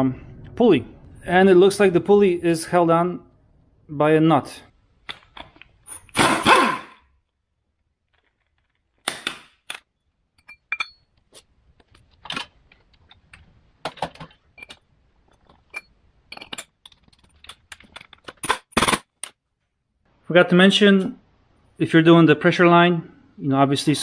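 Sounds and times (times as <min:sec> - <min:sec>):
air impact wrench: 0:06.1 - 0:06.9
metal parts clinking on concrete: 0:09.7 - 0:11.2, 0:15.4 - 0:19.4.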